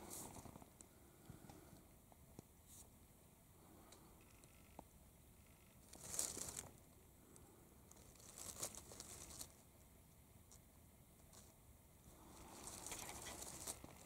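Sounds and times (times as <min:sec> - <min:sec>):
faint crinkling rustle: 0:00.0 - 0:01.7, 0:05.4 - 0:09.8, 0:10.4 - 0:14.0.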